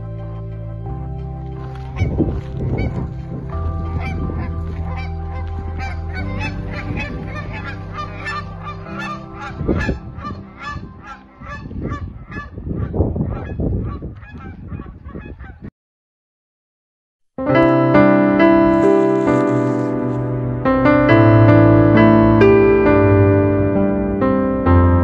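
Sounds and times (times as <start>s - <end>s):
low held music notes: 0.0s - 12.3s
flock of birds calling: 3.8s - 15.5s.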